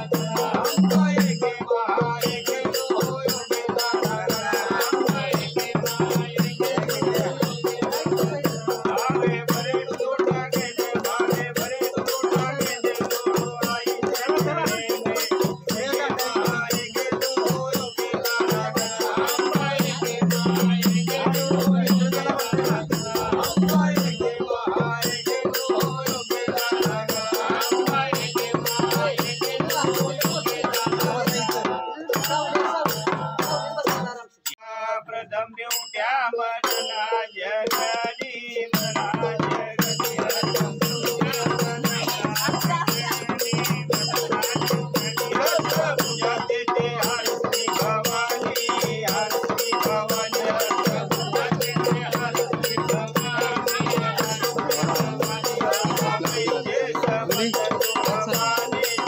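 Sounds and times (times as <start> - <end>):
drum: 0.0 - 34.2, 38.8 - 59.0
fast rattling percussion: 0.0 - 34.2, 36.6 - 59.0.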